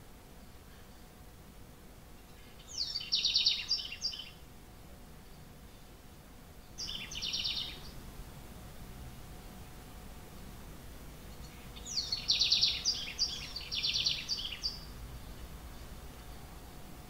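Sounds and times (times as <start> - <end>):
wren song trills: 2.2 - 4.5, 5.2 - 8.1, 11.2 - 17.0.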